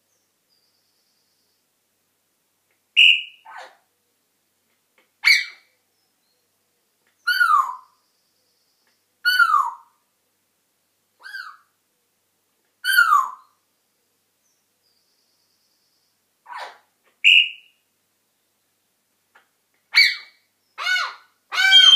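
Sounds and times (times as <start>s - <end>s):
parrot calling: 3.0s - 3.8s, 5.2s - 5.7s, 7.2s - 7.9s, 9.2s - 9.9s, 11.2s - 11.7s, 12.8s - 13.5s, 16.4s - 17.7s, 19.9s - 21.9s.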